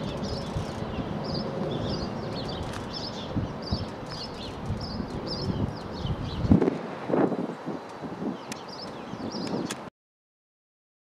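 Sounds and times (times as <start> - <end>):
small bird chirping: 0.0 - 6.6.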